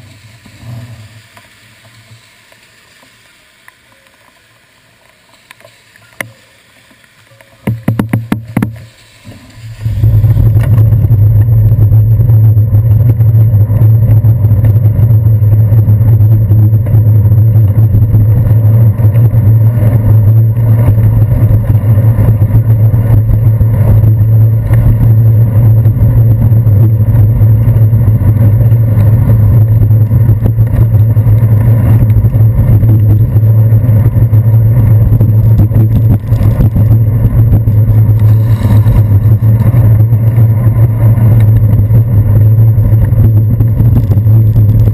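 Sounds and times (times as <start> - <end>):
road vibration rumble: 0.0 - 3.2, 4.3 - 44.9
wind buffeting: 9.4 - 44.9.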